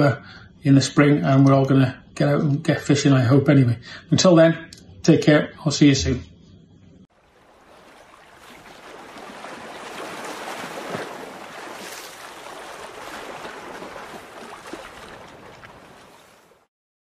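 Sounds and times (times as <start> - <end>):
rushing water: 7.1 - 16.7.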